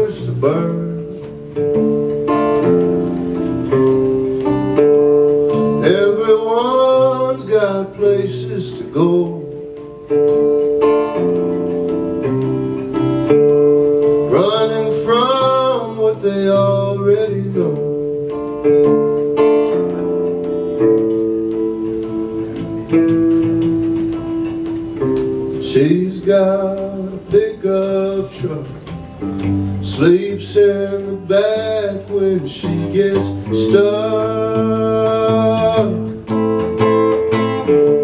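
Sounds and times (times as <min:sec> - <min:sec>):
man singing wordless held notes: 0:00.0 - 0:01.4, 0:05.5 - 0:09.8, 0:14.2 - 0:18.5, 0:25.5 - 0:29.1, 0:29.7 - 0:36.3
electric guitar chords: 0:00.0 - 0:38.0.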